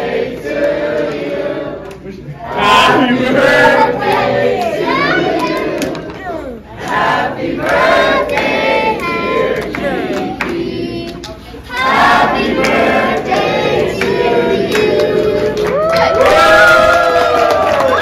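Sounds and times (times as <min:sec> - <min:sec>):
crowd noise: 0:00.0 - 0:08.2
group of people singing: 0:00.0 - 0:15.9.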